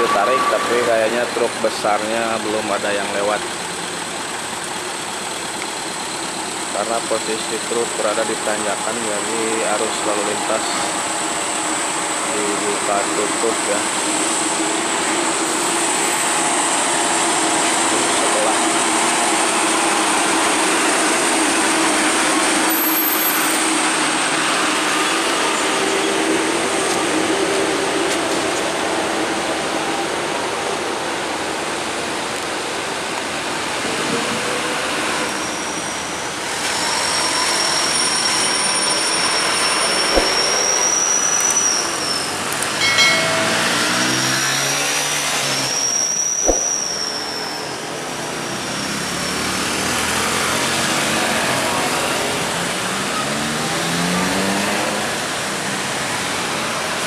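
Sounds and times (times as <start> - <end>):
long high squeal: 0.0 - 2.1, 34.6 - 48.4
car and truck engines passing: 0.0 - 57.0
short blip: 40.1 - 40.8, 42.8 - 44.1, 46.4 - 46.8.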